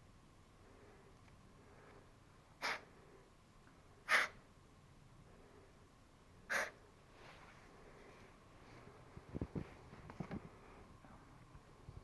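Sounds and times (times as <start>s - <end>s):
person breathing sharply: 0.6s - 3.3s.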